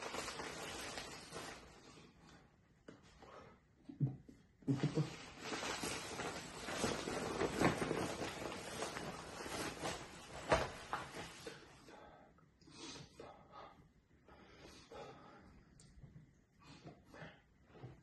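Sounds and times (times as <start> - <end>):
fabric bag rustling: 0.0 - 2.0, 5.1 - 11.6.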